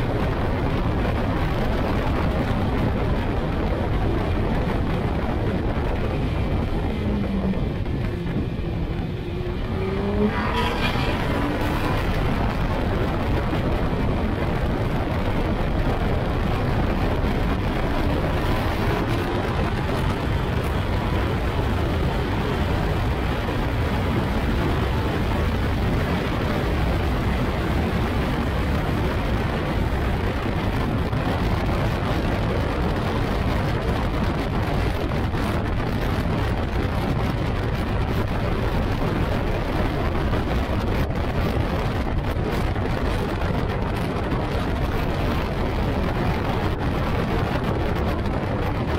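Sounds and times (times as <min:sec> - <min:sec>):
wind rushing and buffeting microphone: 0:00.0 - 0:48.9
motorcycle engine running: 0:02.4 - 0:24.6.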